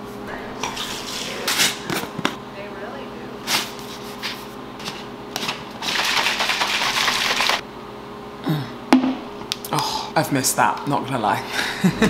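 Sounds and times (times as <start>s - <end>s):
plastic shaker bottle shaken: 5.8s - 7.6s.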